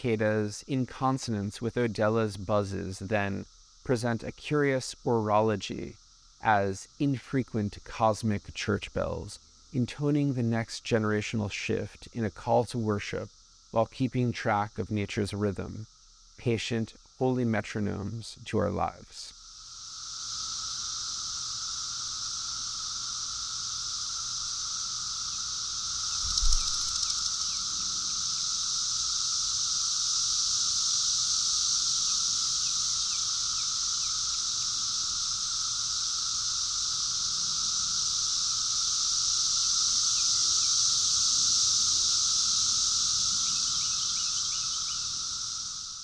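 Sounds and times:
cicadas buzzing drone: 0:00.0 - 0:46.0
single thump: 0:26.2 - 0:27.0.

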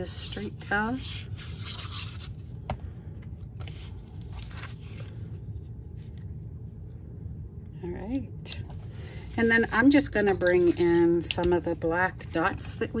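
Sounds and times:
paper rubbing and scraping: 0:00.2 - 0:02.5, 0:03.6 - 0:06.3.

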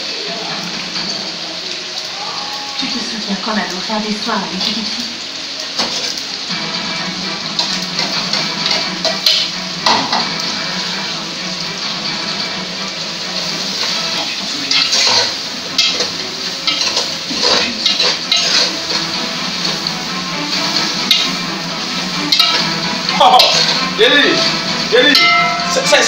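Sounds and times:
gas stove hiss: 0:00.1 - 0:26.0
metal utensil scraping a pot: 0:14.7 - 0:19.9, 0:20.7 - 0:21.5, 0:22.1 - 0:25.3.

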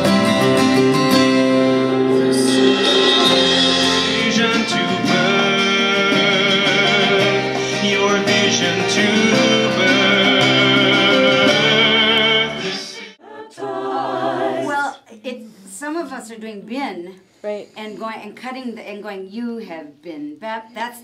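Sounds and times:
acoustic guitar: 0:00.0 - 0:13.2
person singing: 0:00.0 - 0:13.8.

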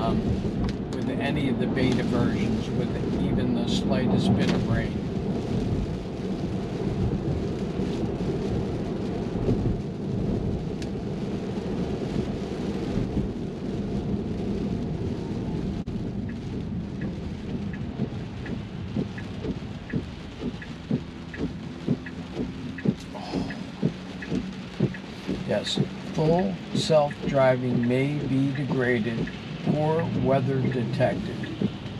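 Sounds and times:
rain pattering on glass roof: 0:00.0 - 0:31.9
tyre noise on wet road: 0:00.0 - 0:31.9
light regular ticking: 0:00.2 - 0:05.6, 0:16.2 - 0:31.9.

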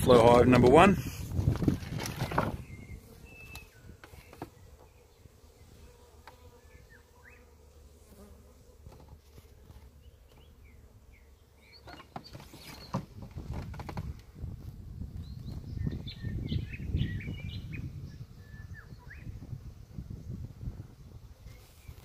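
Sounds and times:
honeybees buzzing: 0:00.0 - 0:22.0.

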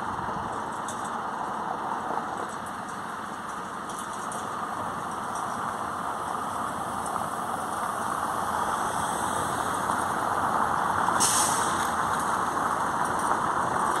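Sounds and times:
vehicle engine running: 0:00.0 - 0:14.0
air brake hiss: 0:11.2 - 0:12.0.

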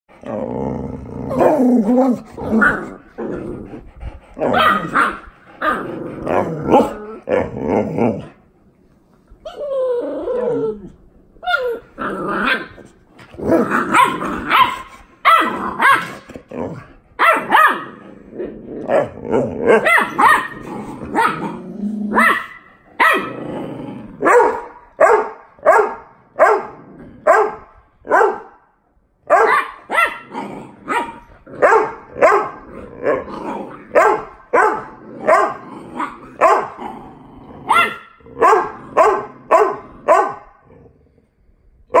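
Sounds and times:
dog growling: 0:00.1 - 0:08.5, 0:09.6 - 0:24.4, 0:30.2 - 0:41.3
dog barking: 0:04.5 - 0:05.2, 0:13.9 - 0:16.2, 0:17.2 - 0:17.9, 0:19.7 - 0:20.6, 0:21.2 - 0:21.5, 0:22.2 - 0:23.3, 0:24.2 - 0:26.7, 0:27.3 - 0:28.6, 0:29.3 - 0:30.3, 0:30.9 - 0:32.6, 0:33.9 - 0:35.6, 0:36.4 - 0:36.8, 0:37.7 - 0:40.4.

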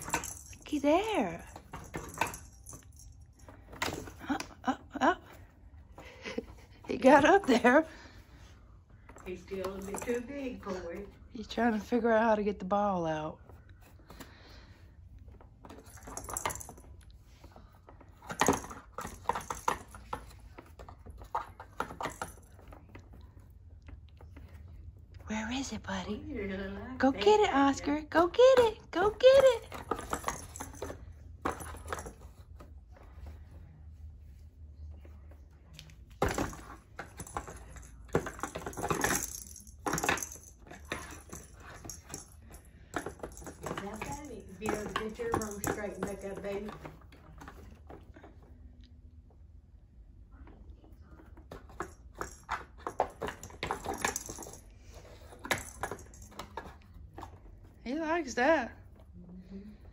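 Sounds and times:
ball rattling in cardboard box: 0:00.0 - 0:04.4, 0:09.0 - 0:11.9, 0:15.2 - 0:17.0, 0:17.8 - 0:24.6, 0:28.8 - 0:32.7, 0:36.1 - 0:48.2, 0:51.3 - 0:58.0.

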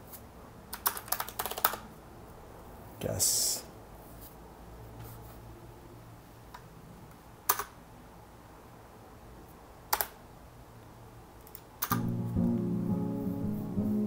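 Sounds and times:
computer keyboard clicks: 0:00.7 - 0:01.9, 0:07.5 - 0:07.8, 0:09.9 - 0:10.2, 0:11.4 - 0:12.0
music track playing: 0:12.0 - 0:14.0.

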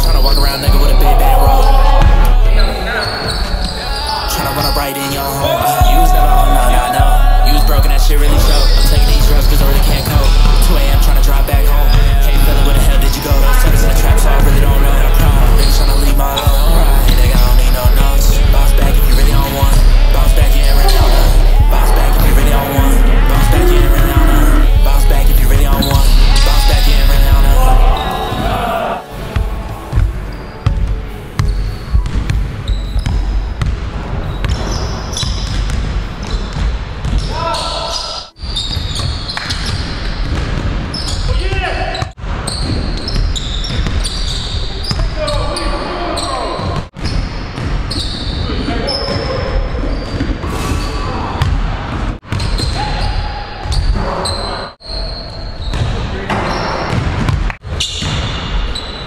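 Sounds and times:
sneakers squeaking on floor: 0:00.0 - 0:59.0
basketball bouncing on wood floor: 0:29.9 - 0:37.3, 0:56.9 - 0:58.2.

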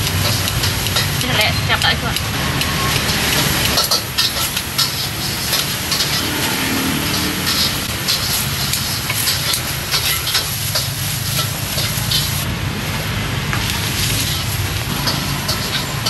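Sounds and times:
low traffic rumble: 0:00.0 - 0:16.0.

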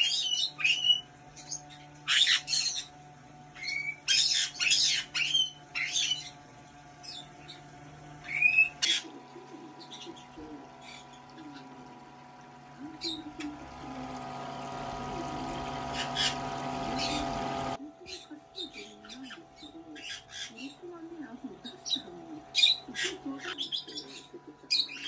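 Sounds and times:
parrot squawking: 0:00.0 - 0:02.9, 0:03.6 - 0:06.4, 0:08.2 - 0:11.9, 0:15.5 - 0:25.0
small pump humming: 0:00.0 - 0:25.0
water pouring into plastic tub: 0:08.8 - 0:17.8.

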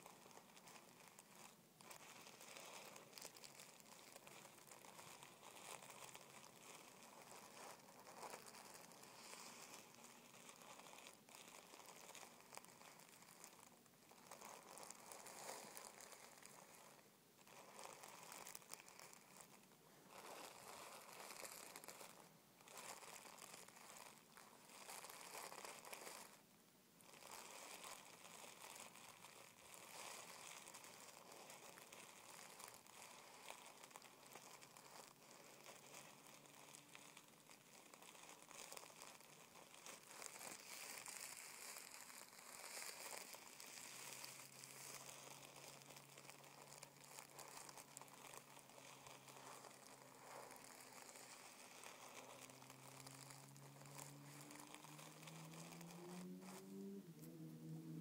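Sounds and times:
tissue paper crinkling: 0:00.0 - 0:58.0.

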